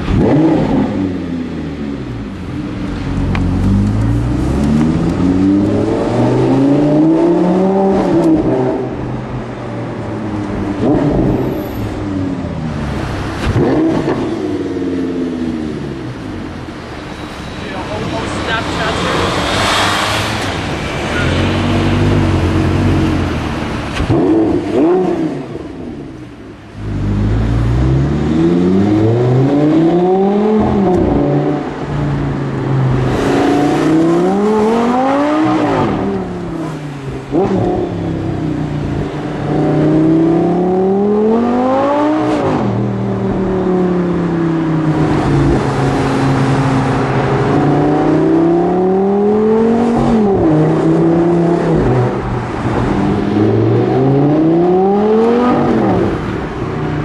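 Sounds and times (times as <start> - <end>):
car engine revving hard: 0.0 - 1.3, 13.0 - 15.8, 18.3 - 26.0, 26.8 - 31.8, 32.9 - 44.4, 45.0 - 56.4.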